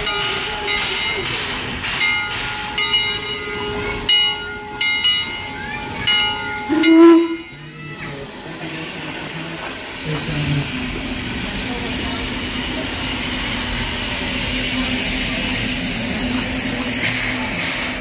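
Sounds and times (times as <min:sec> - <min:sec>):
steam hissing: 0:00.0 - 0:05.4, 0:06.4 - 0:18.0
locomotive bell ringing: 0:00.0 - 0:08.0.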